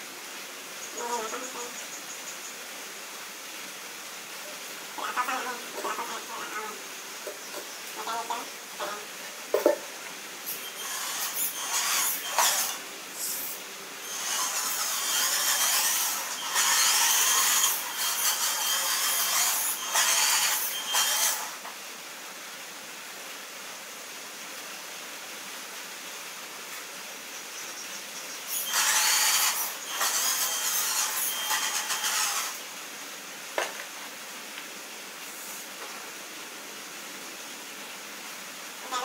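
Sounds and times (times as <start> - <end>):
toy tractor motor whirring: 10.5 - 21.6, 28.5 - 32.6.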